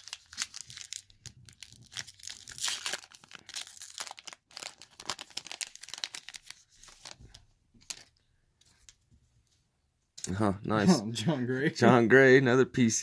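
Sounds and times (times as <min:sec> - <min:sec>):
foil wrapper tearing and crinkling: 0:00.0 - 0:08.1.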